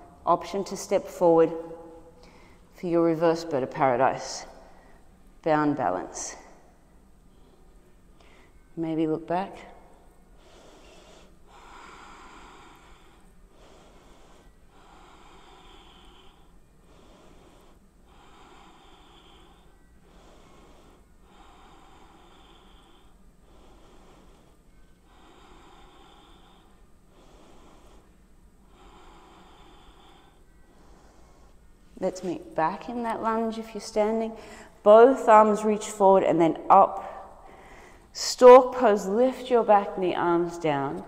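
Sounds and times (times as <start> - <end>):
woman breathing slowly: 1.4 - 2.8, 4.4 - 5.4, 6.4 - 8.8, 9.6 - 32.3, 34.3 - 34.9, 37.0 - 38.2.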